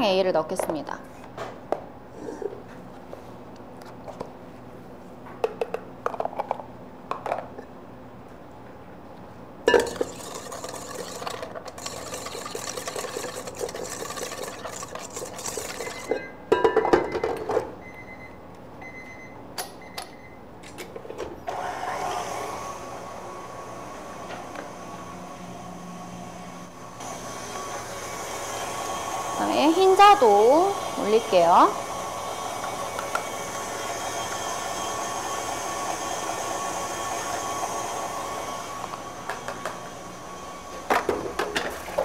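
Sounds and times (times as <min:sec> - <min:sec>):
bowl and utensils clinking: 0:09.7 - 0:17.4
electric mixer running: 0:09.8 - 0:16.2, 0:21.5 - 0:41.4.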